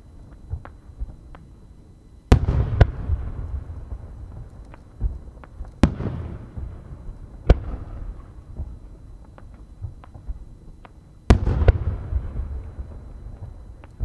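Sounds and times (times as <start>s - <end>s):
firework shells booming: 2.3s - 8.8s, 11.3s - 14.0s
faint firework pops: 7.4s - 14.0s.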